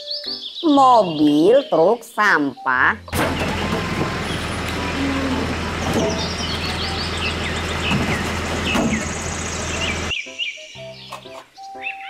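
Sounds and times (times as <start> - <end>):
birds chirping: 0.0 - 12.0
street noise: 3.0 - 10.1
truck engine idling: 3.1 - 10.1.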